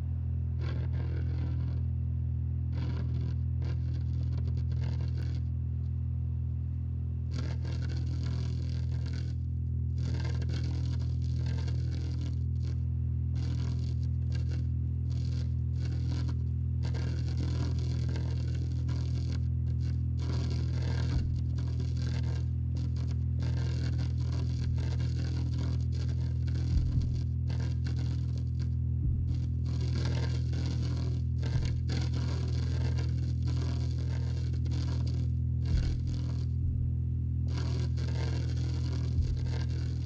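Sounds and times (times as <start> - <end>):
low droning hum: 0.0 - 40.0
static-like crackling: 0.0 - 40.0
soft low thumps: 19.8 - 40.0.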